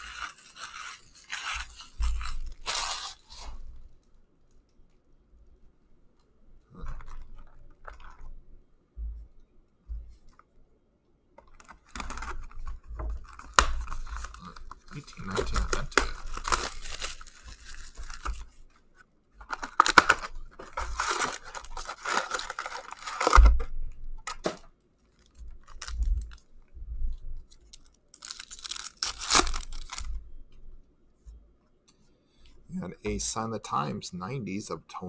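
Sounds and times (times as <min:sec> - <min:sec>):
cardboard box tearing: 0:00.0 - 0:03.4, 0:13.5 - 0:18.4, 0:19.6 - 0:23.5, 0:28.2 - 0:30.0
foil wrappers crinkling: 0:00.0 - 0:03.7, 0:11.5 - 0:18.8, 0:19.4 - 0:26.5, 0:27.5 - 0:30.2.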